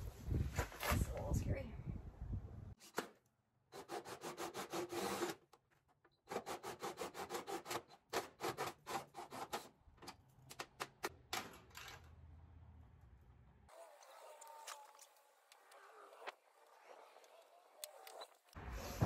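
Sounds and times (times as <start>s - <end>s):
drill hole saw cutting: 3.8s - 5.4s.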